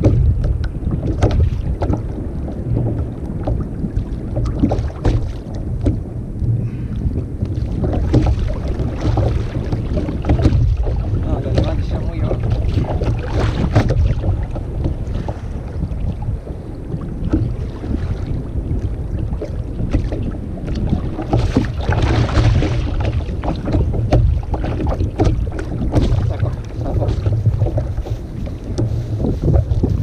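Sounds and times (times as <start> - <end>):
water sloshing against hull: 0.0 - 30.0
wind buffeting microphone: 0.0 - 30.0
small knocks and rustles: 21.2 - 30.0.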